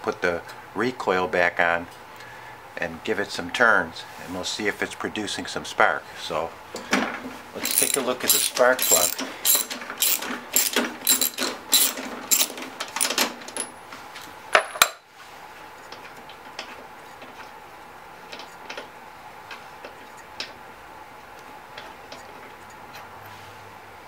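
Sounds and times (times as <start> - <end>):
socket ratchet clicking: 7.6 - 13.7.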